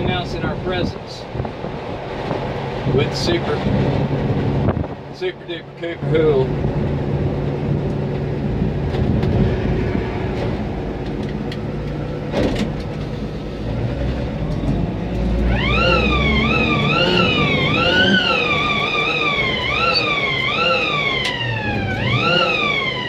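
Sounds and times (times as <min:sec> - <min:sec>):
road noise: 0:00.0 - 0:23.0
truck engine drone: 0:00.0 - 0:23.0
siren-like wailing tone: 0:15.2 - 0:23.0.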